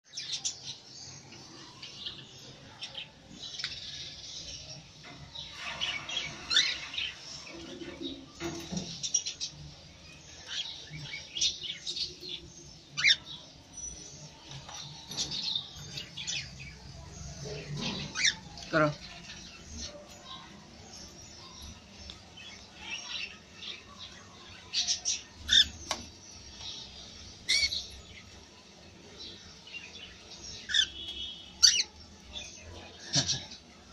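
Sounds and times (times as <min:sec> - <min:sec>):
cockatiels chirping: 0:31.6 - 0:31.9.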